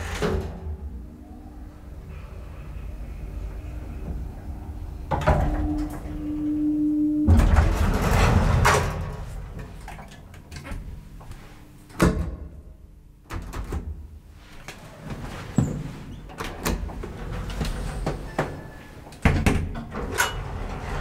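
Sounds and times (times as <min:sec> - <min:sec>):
elevator steady tone: 0:00.0 - 0:09.6
elevator doors sliding open: 0:00.0 - 0:11.0, 0:14.8 - 0:21.0.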